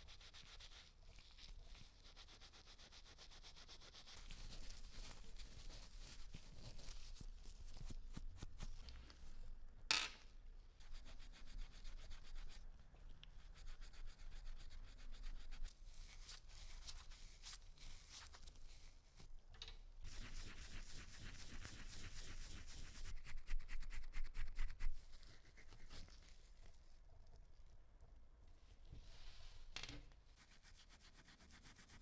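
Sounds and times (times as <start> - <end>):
steel wool scratchy rubbing: 20.1 - 26.4, 30.4 - 32.0.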